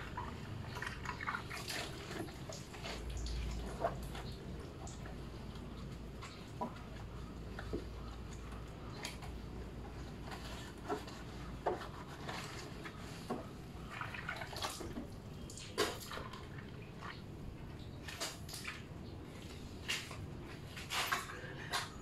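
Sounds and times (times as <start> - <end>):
water splashing and dripping: 0.0 - 9.3, 12.4 - 21.9.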